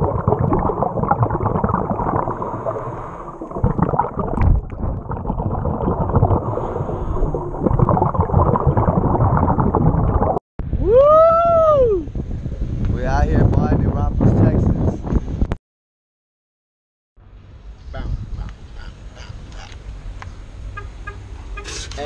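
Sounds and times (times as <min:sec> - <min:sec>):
bubbling: 0:00.0 - 0:10.4
muffled underwater rushing water: 0:00.0 - 0:10.4.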